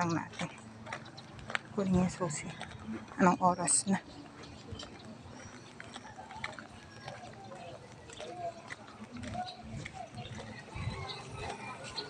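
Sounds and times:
faint street ambience: 0:00.0 - 0:12.0
footsteps on paved road: 0:00.0 - 0:12.0.

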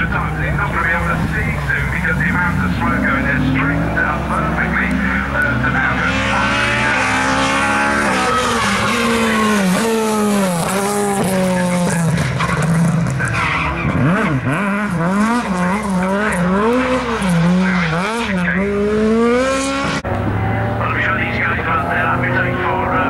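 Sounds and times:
rally car engine revving: 0:00.0 - 0:23.0
tyre squeal: 0:07.8 - 0:11.3, 0:12.2 - 0:14.4.

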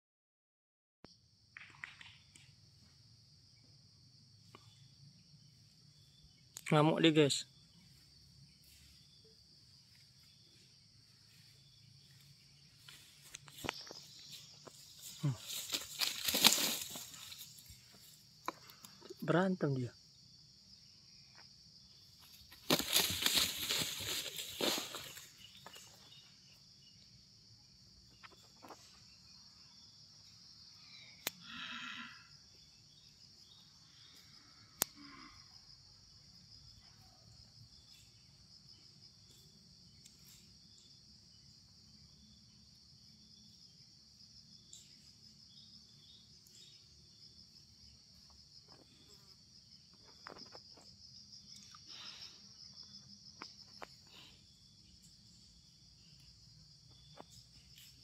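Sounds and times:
high-pitched insect drone: 0:04.6 - 0:35.9.

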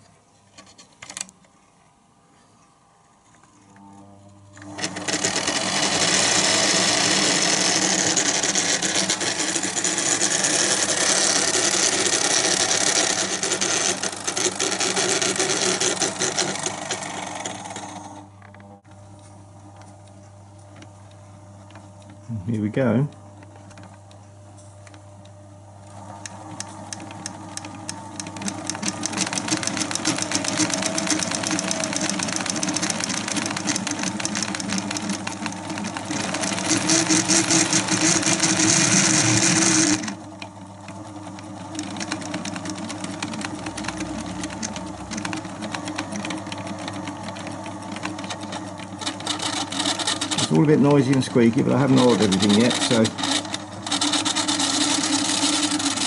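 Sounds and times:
faint motor hum: 0:00.0 - 0:56.0
film projector clattering and squeaking: 0:04.6 - 0:18.2, 0:25.9 - 0:56.0.

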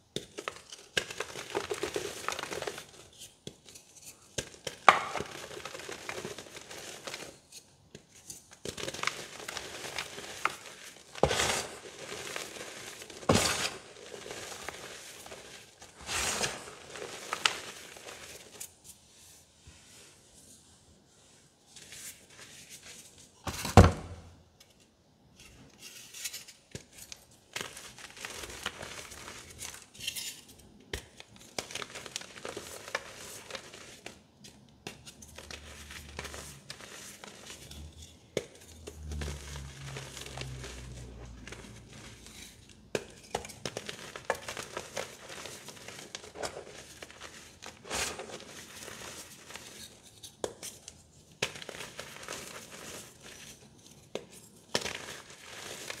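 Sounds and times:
chalk crunching by hand: 0:08.2 - 0:18.7.

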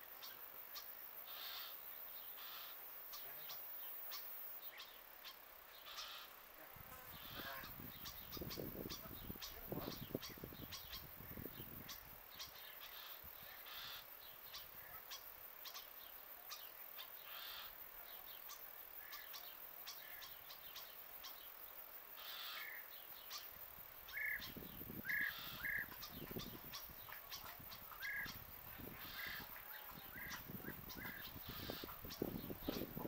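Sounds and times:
birds chirping: 0:07.1 - 0:33.0.

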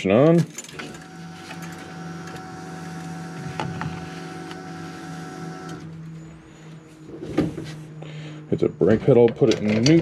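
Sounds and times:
small electric motor whine: 0:00.9 - 0:08.0.

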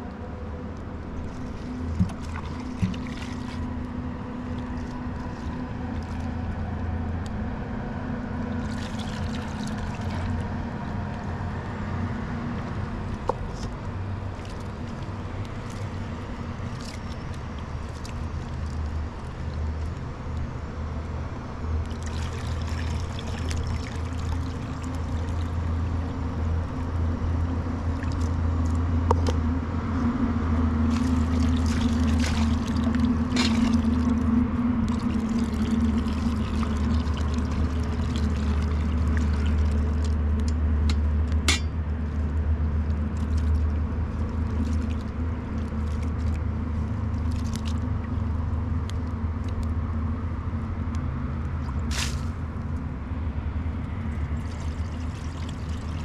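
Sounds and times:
steady low rumble: 0:00.0 - 0:56.0
water pouring into metal bowl: 0:30.9 - 0:34.2, 0:34.8 - 0:40.2, 0:54.4 - 0:56.0.

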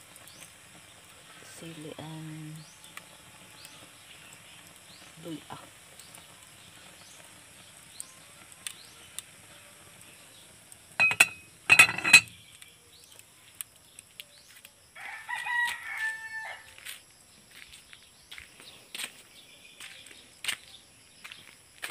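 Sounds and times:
faint fire ticks: 0:00.0 - 0:10.9, 0:12.4 - 0:14.8
metal pot lid clattering: 0:11.0 - 0:12.4
rooster crowing: 0:15.0 - 0:16.9.

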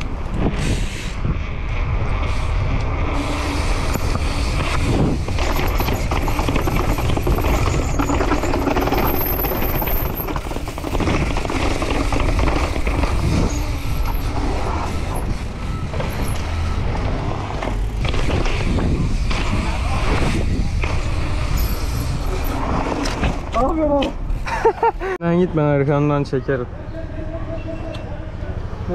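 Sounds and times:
wind on microphone: 0:00.0 - 0:09.0, 0:10.0 - 0:23.1
bike rattling down stone stairs: 0:03.9 - 0:15.2.

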